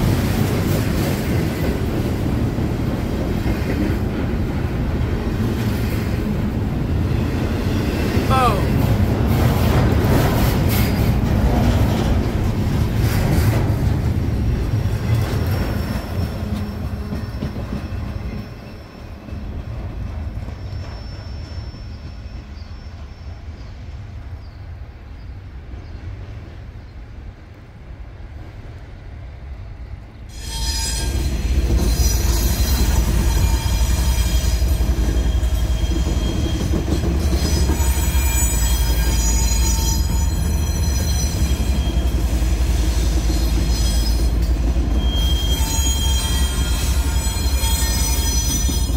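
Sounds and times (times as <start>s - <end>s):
train rumbling on rails: 0.0s - 48.9s
steel wheels squealing on rail: 6.8s - 12.1s, 14.7s - 25.2s, 30.3s - 48.9s.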